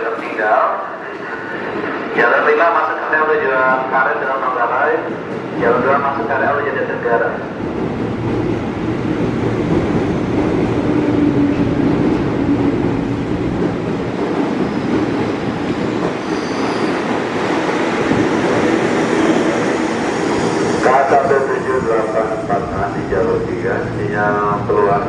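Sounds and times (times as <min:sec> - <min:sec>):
electric train rumbling past: 0:00.0 - 0:25.0
faint high wheel squeals: 0:16.2 - 0:17.0.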